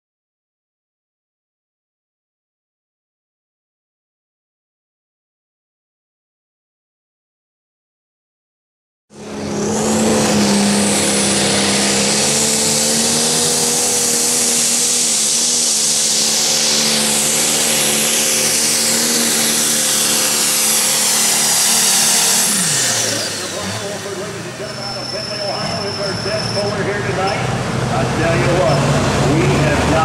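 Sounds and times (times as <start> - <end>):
tractor diesel engine under load: 9.1 - 30.0
high whistle: 24.6 - 27.0.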